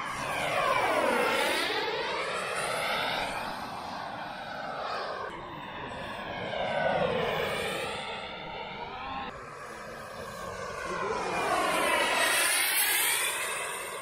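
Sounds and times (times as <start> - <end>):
model jet engine whining: 0.0 - 14.0.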